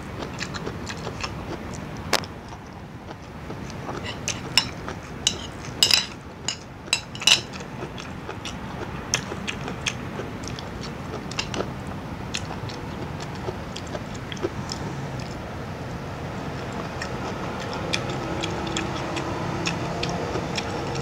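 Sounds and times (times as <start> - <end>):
chewing and mouth smacking: 0.2 - 15.4, 16.5 - 21.0.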